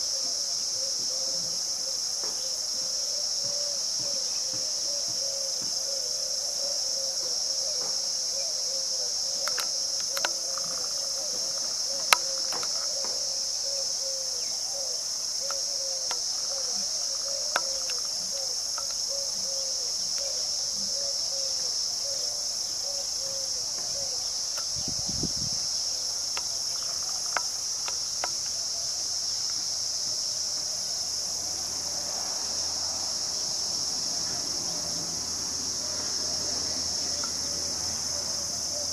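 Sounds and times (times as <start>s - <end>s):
insect chorus: 0.0s - 38.9s.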